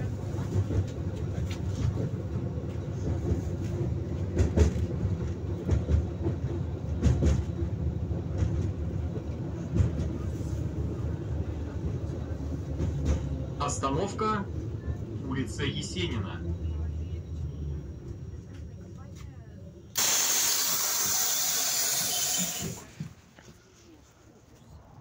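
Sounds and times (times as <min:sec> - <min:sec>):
tram rumbling on rails: 0:00.0 - 0:25.0.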